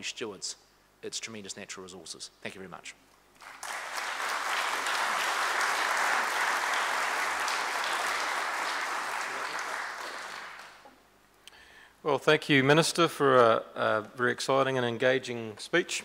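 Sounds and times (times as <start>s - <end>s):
audience applauding: 3.4s - 10.8s.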